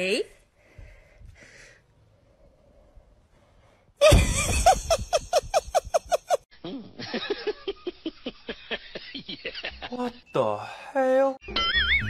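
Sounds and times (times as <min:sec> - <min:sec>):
person laughing loudly: 0:04.0 - 0:10.1.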